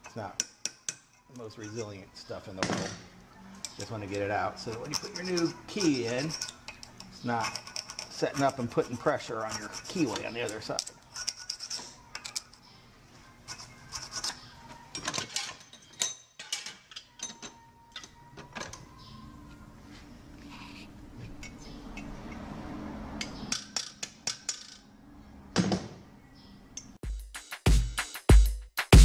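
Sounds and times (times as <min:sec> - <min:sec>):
screwdriver scraping metal: 0:03.6 - 0:12.6, 0:13.4 - 0:18.1.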